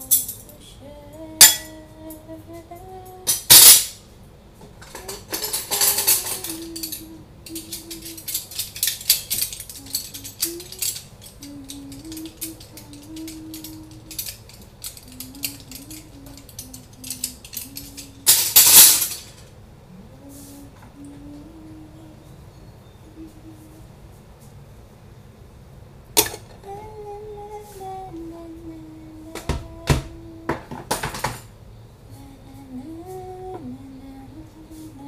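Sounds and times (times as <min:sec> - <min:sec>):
woman humming: 0:00.0 - 0:03.5, 0:04.8 - 0:08.6, 0:09.4 - 0:18.6, 0:19.9 - 0:24.2, 0:26.6 - 0:30.8, 0:32.0 - 0:35.0
dishes and cutlery clinking: 0:01.4 - 0:01.8, 0:03.3 - 0:04.0, 0:04.8 - 0:19.4, 0:26.2 - 0:26.6.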